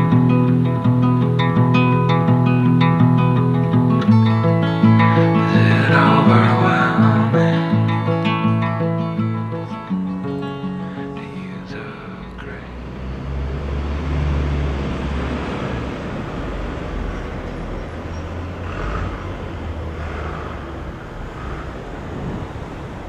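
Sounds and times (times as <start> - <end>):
street traffic rumble: 0.0 - 23.0.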